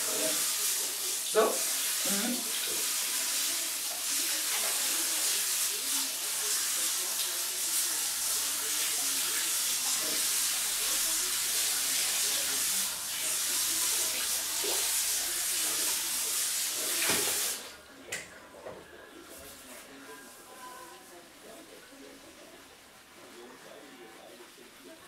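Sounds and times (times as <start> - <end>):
shower head spraying water: 0.0 - 17.8.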